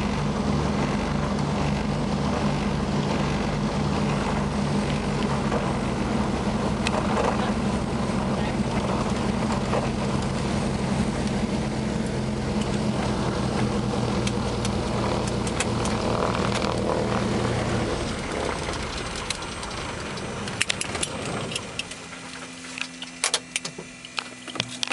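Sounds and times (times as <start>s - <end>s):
low hum: 0.0s - 24.9s
twin propeller engines running: 0.0s - 24.9s.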